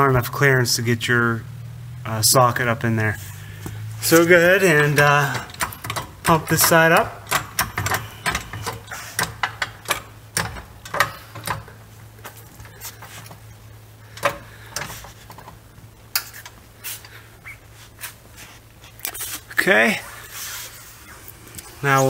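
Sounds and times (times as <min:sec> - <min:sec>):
steady low hum: 0:00.0 - 0:22.0
floor jack clicks and clunks: 0:04.0 - 0:13.4, 0:14.1 - 0:15.6.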